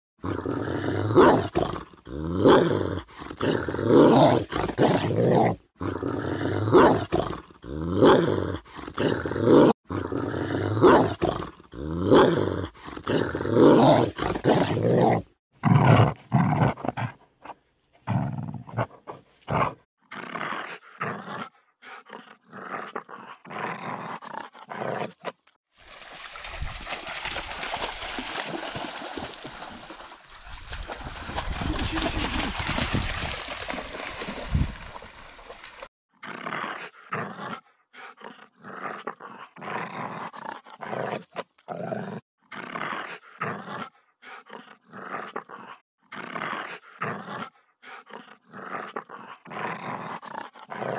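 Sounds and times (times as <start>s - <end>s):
dog growling: 18.0s - 25.4s, 36.2s - 50.9s
creek water flowing: 25.7s - 35.9s.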